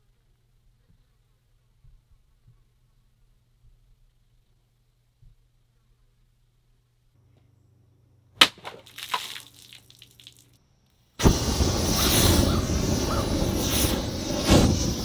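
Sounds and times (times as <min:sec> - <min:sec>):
rush of flame: 0:11.2 - 0:15.0.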